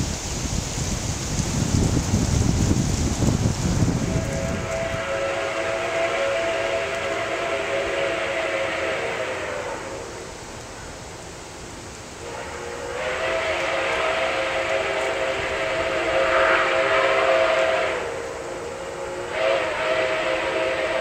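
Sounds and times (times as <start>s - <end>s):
steam locomotive whistle: 3.8s - 10.4s, 12.2s - 21.0s.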